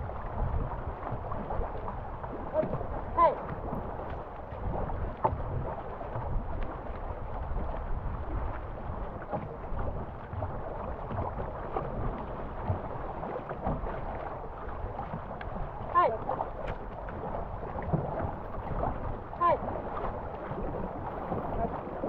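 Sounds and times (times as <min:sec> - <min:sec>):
paddle stroke splashes: 0:00.0 - 0:22.0
wind buffeting microphone: 0:00.0 - 0:22.0
river water rushing: 0:01.6 - 0:04.8, 0:15.7 - 0:22.0.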